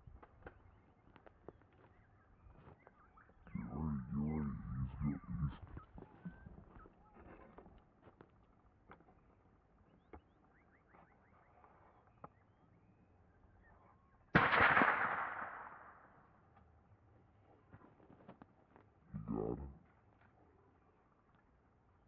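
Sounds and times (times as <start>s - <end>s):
rifle shot: 14.3s - 16.2s.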